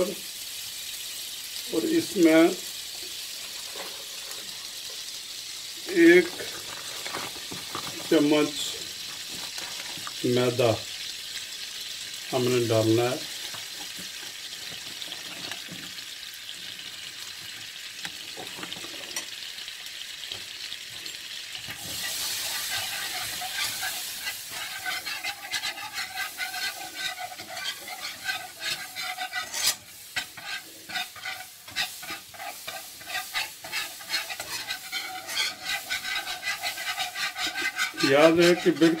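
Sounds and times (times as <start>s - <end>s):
roux sizzling in frying pan: 0.0s - 39.0s
whisk scraping on pan: 21.7s - 39.0s.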